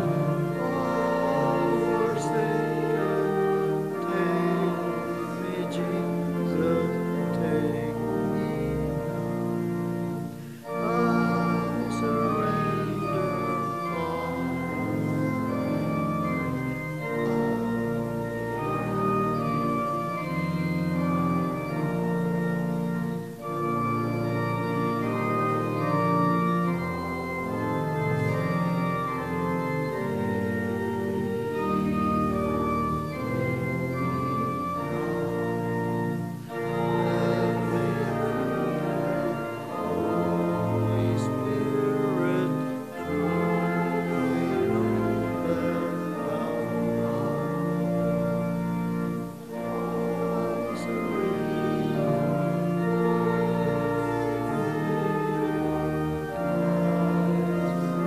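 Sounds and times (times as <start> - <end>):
organ playing hymn chords: 0.0 - 58.0.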